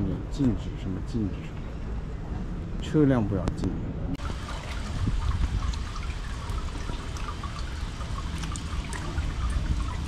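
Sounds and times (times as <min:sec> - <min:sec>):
water trickling and splashing: 0:04.2 - 0:10.0.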